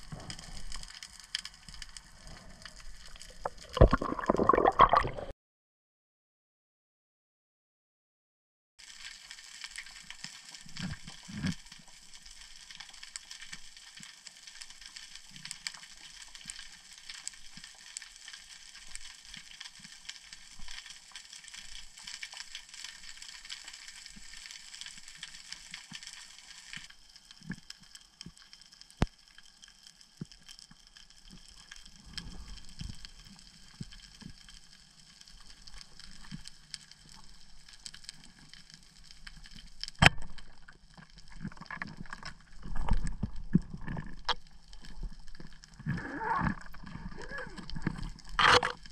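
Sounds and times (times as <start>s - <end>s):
underwater crackling clicks: 22.0s - 48.9s.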